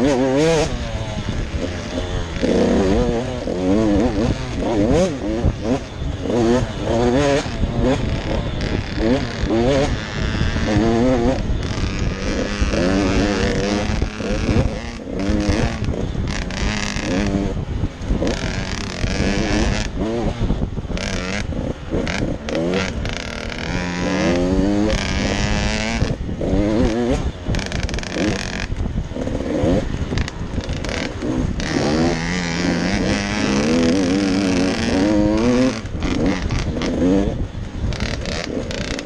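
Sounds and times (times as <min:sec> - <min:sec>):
motocross engine revving: 0:00.0 - 0:39.0
wind noise on microphone: 0:00.0 - 0:39.0.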